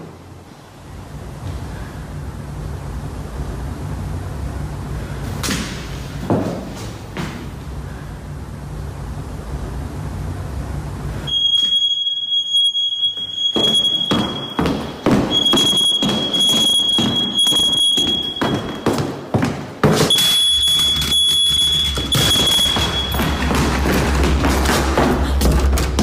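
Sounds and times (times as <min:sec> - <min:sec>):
hurried footsteps and knocks: 0:05.4 - 0:07.6, 0:13.2 - 0:26.0
smoke alarm beeping: 0:11.3 - 0:19.1, 0:20.1 - 0:23.9.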